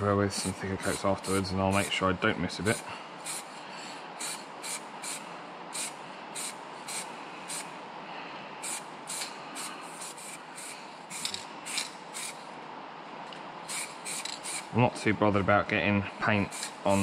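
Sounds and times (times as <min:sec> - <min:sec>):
aerosol spray paint hissing: 0:02.7 - 0:07.7, 0:08.6 - 0:12.4, 0:13.7 - 0:14.7, 0:16.4 - 0:17.0.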